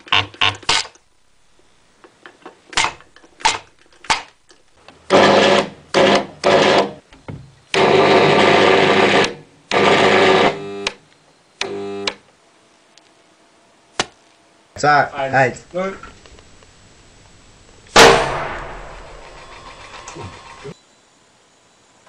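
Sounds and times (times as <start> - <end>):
electric arc snaps: 2.7 - 4.8.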